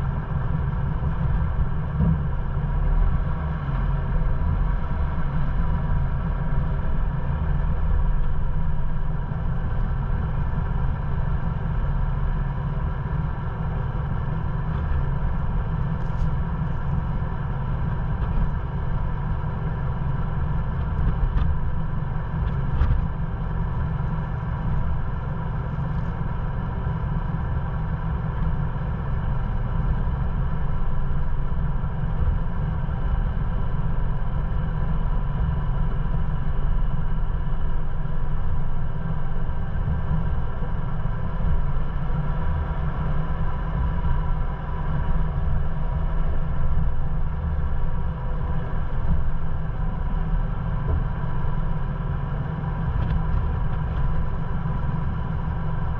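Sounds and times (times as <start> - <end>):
truck engine rumbling: 0.0 - 55.9.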